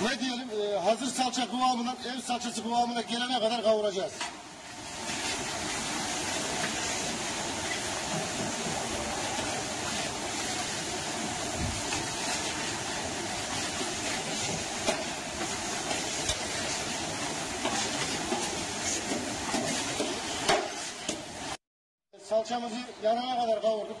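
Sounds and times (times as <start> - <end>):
vegetables sizzling in pan: 4.0 - 21.6.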